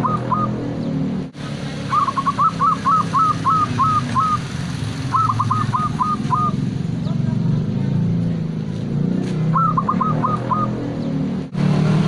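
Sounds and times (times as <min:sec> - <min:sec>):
dove cooing: 0:00.0 - 0:00.6, 0:01.9 - 0:06.6, 0:09.5 - 0:10.8.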